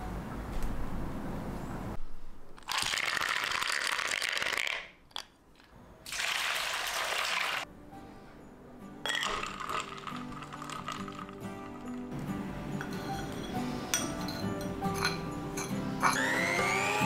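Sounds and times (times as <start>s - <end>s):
water pouring: 6.1s - 7.6s, 9.3s - 12.0s
background music: 7.6s - 17.0s
glass bowl clinking: 9.0s - 16.3s
ice cubes clattering into bowl: 9.1s - 12.1s.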